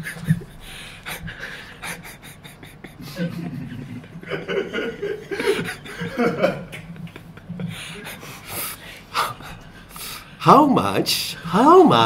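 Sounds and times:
man laughing: 0.0 - 8.2
woman laughing: 0.0 - 8.2.

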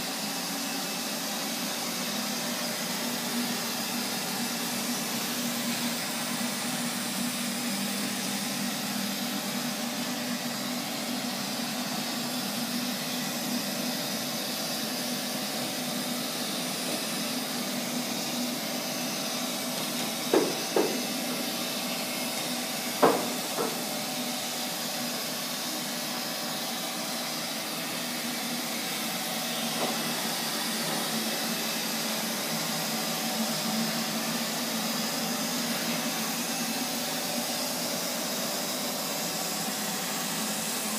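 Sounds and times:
robot vacuum running: 0.1 - 40.9.

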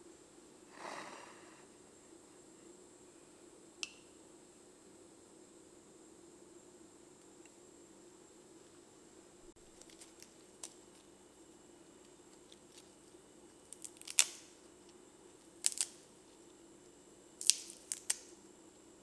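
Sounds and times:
faint steady hum: 0.0 - 19.0
lettuce leaves crackling: 9.6 - 11.1, 13.6 - 14.6, 15.5 - 16.0, 17.4 - 18.3.

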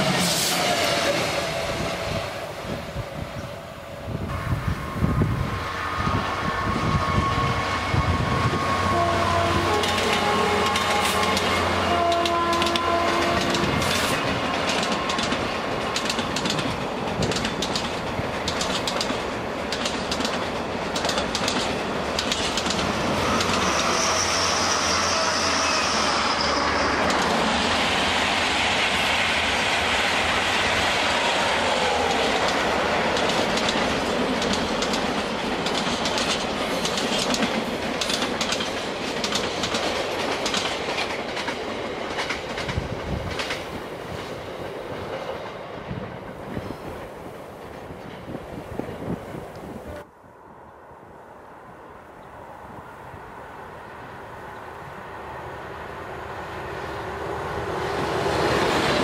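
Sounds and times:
diesel locomotive passing: 0.0 - 59.0
high wheel squeal: 4.3 - 13.0, 23.1 - 27.3
train wheels clickety-clack: 6.8 - 24.8, 26.9 - 49.7.

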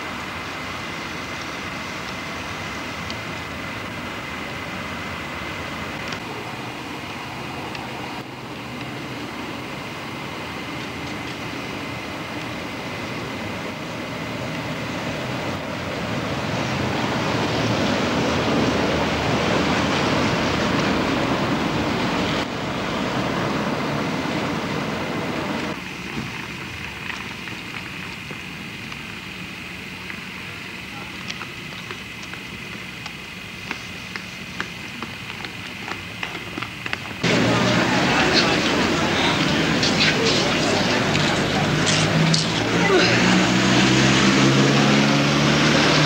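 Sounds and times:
vehicle rushing noise: 0.0 - 26.3, 37.2 - 46.0
scattered clicks: 31.1 - 42.7.

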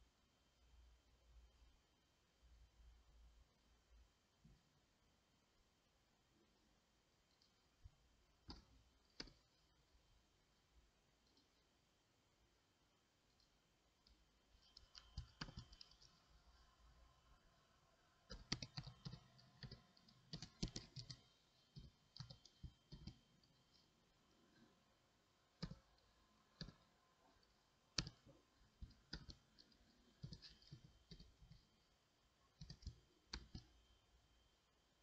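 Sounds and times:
computer keyboard typing: 13.3 - 16.4, 18.2 - 23.9, 25.5 - 31.8, 32.5 - 33.8.

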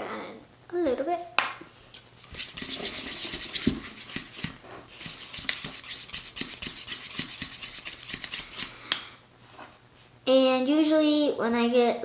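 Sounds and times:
plastic spoon scraping slime in bowl: 2.0 - 8.8.

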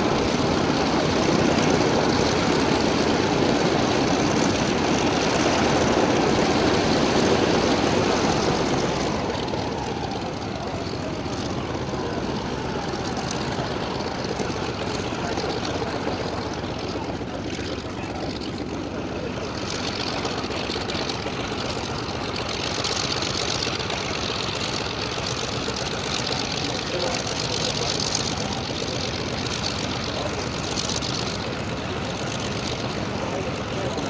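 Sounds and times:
propeller plane engine idling: 0.0 - 34.0.

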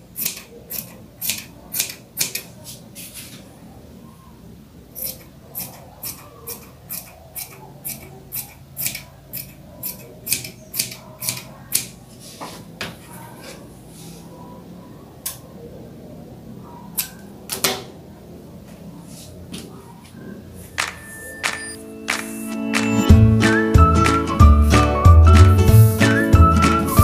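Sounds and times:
scissors snipping fabric: 0.2 - 2.5, 5.0 - 11.9.

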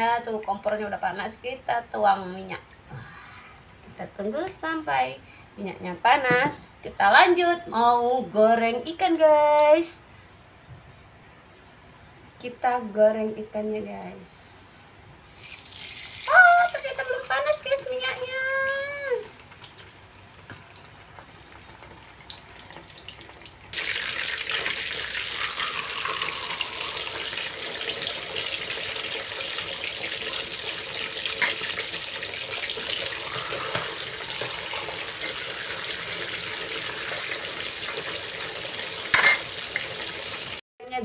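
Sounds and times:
fish sizzling in hot oil: 15.4 - 40.6.

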